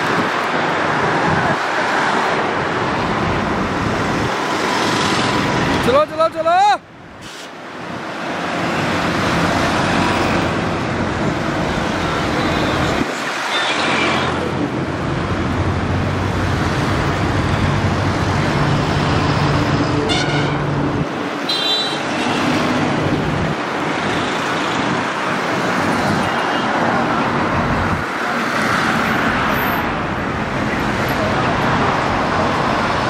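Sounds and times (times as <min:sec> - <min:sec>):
traffic noise: 0:00.0 - 0:33.0
short horn toots: 0:20.1 - 0:20.7.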